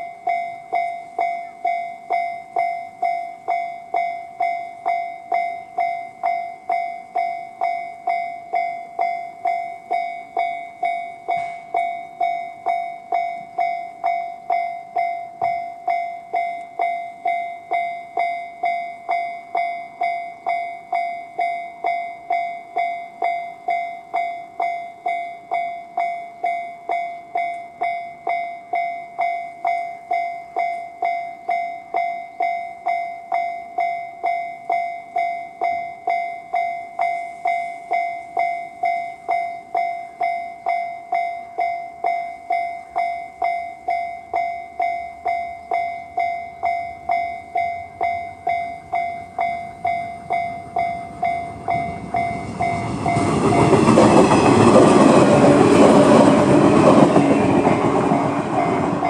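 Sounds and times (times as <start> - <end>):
electric train rushing past: 0.0 - 21.9, 44.3 - 59.0
level crossing alarm ringing: 0.0 - 59.0.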